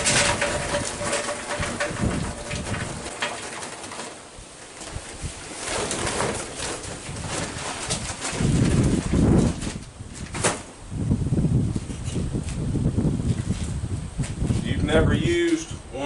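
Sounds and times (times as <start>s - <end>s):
charcoal pouring into metal chimney: 0.0s - 9.8s
paper bag bumping: 0.0s - 10.7s.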